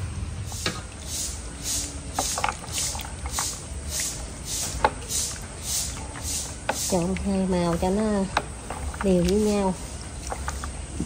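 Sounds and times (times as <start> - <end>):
water swishing: 0.5 - 11.0.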